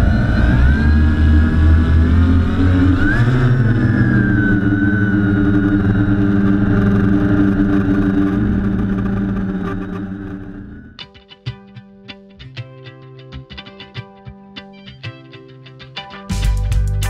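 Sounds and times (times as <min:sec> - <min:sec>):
drone motors whining: 0:00.0 - 0:11.0.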